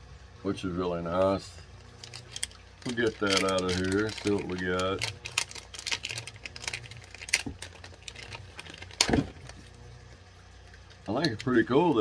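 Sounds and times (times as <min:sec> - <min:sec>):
plastic packaging crinkling: 0:01.8 - 0:09.8.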